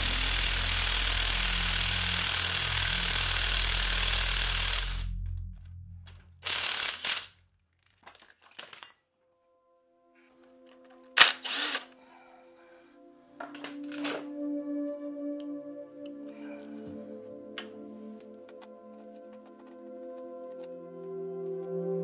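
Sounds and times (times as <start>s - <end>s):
impact wrench hammering: 0.0s - 5.2s, 6.4s - 7.3s.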